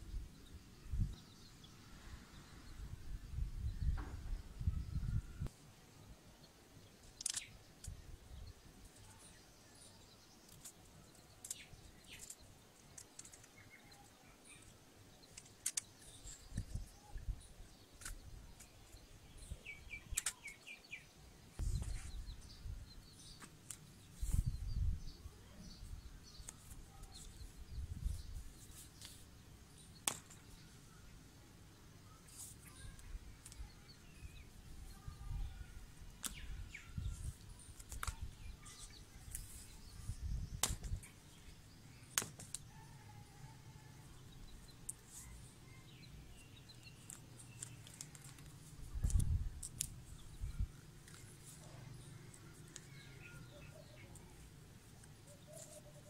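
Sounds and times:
birds chirping: 0.0s - 56.0s
clicks of handling small parts: 7.2s - 8.0s, 15.2s - 16.8s.

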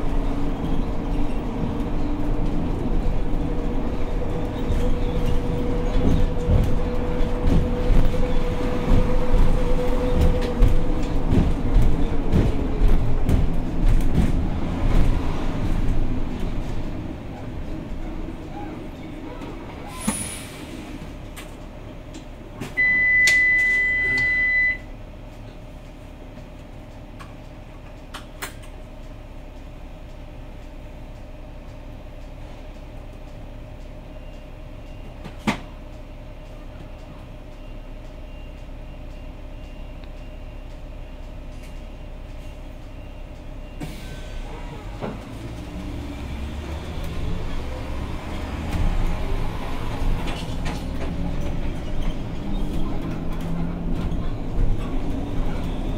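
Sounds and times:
bus drivetrain hum: 0.0s - 55.9s
loud electronic beep: 22.8s - 24.8s.

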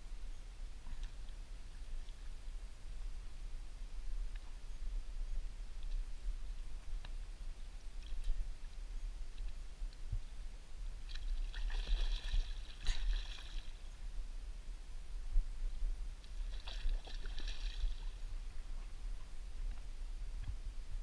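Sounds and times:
fish splashing at water surface: 11.4s - 13.8s, 16.4s - 18.2s.

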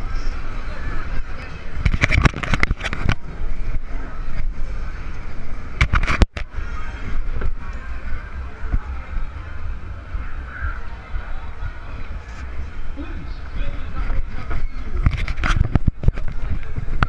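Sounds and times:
low wind rumble on microphone: 0.0s - 17.0s.

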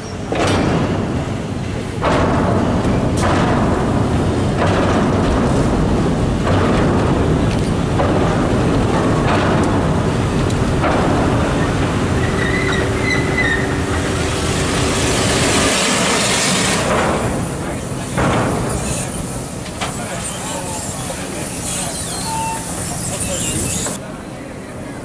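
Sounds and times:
electric locomotive rumbling past: 7.0s - 24.3s
thin squeal: 21.7s - 24.0s.

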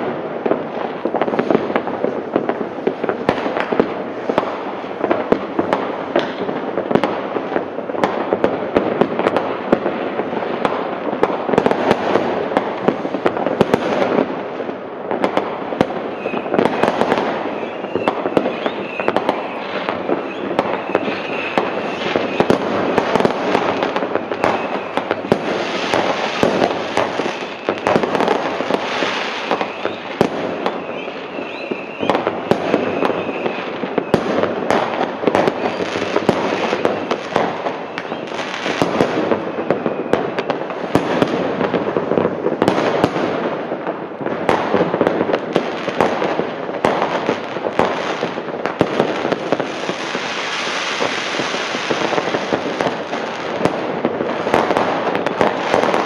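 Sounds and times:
fireworks bangs and crackling: 0.0s - 56.0s.

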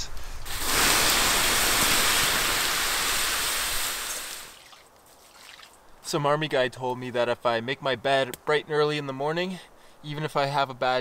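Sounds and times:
water hissing on embers: 0.2s - 6.0s.

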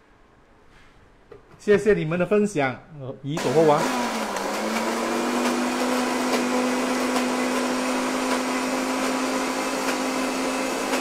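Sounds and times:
blender running at high speed: 3.4s - 11.0s.

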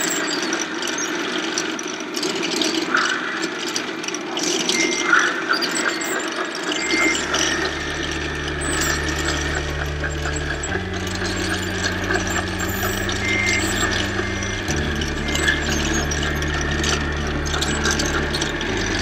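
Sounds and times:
geared whine with ratchety clicking: 0.0s - 19.0s
steady low hum: 6.9s - 19.0s.

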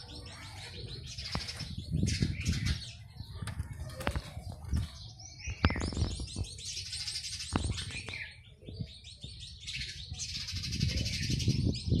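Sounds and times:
sparrows chirping: 0.0s - 12.0s.

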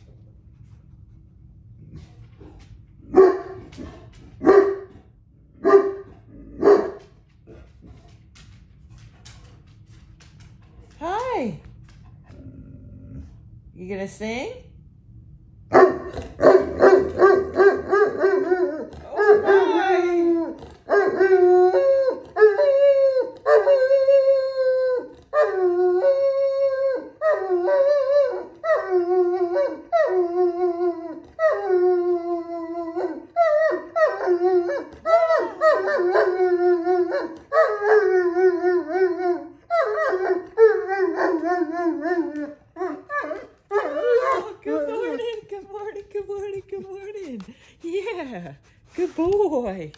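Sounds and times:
dog howling: 15.8s - 45.4s.

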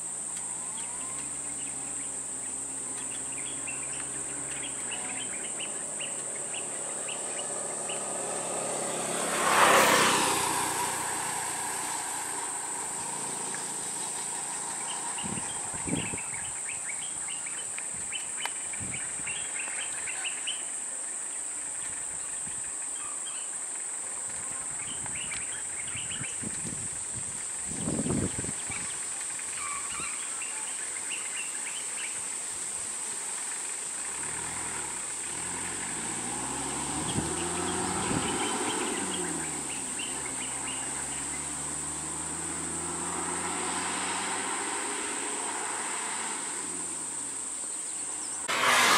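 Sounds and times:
vehicle engine passing: 0.4s - 17.6s, 33.0s - 48.9s.

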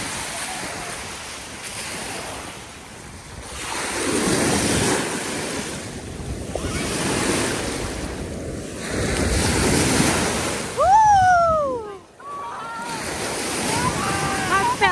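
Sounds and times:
wind buffeting microphone: 0.0s - 12.1s, 12.9s - 14.9s
waves washing onto shore: 0.0s - 14.9s.

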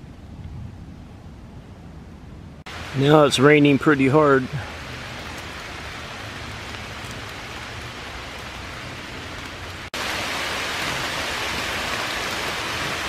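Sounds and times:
hard rain on leaves: 2.7s - 13.0s.

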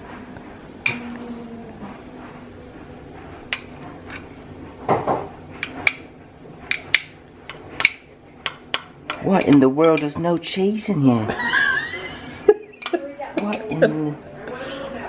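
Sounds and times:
metal spoon clinking glass bowl: 6.7s - 10.2s, 12.8s - 13.7s.

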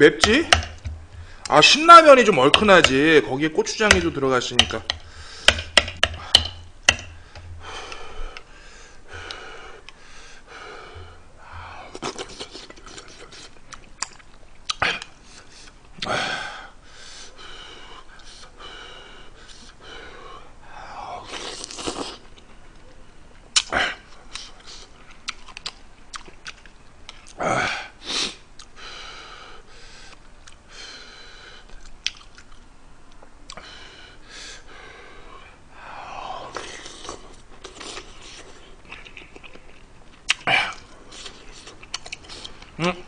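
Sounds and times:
wet chewing with lip smacks: 31.8s - 32.7s, 37.0s - 40.5s, 41.1s - 42.7s.

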